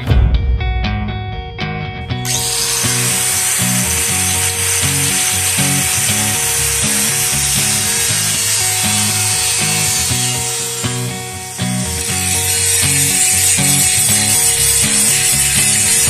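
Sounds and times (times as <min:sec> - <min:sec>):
guitar music: 0:00.0 - 0:16.0
angle grinder cutting steel: 0:02.2 - 0:16.0.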